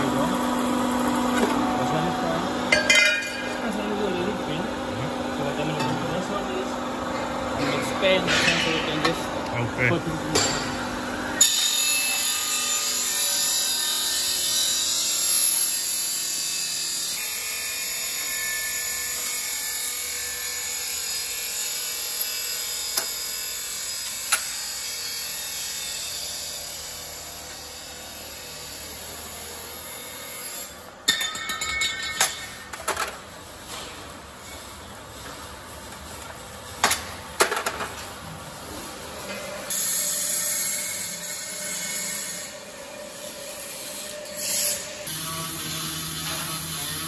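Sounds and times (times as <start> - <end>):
machine hissing on exhaust pipe: 44.5 - 47.0.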